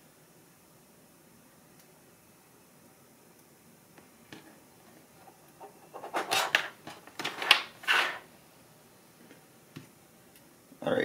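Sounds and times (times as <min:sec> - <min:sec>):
rustling and scraping on a desk: 0:04.4 - 0:08.3.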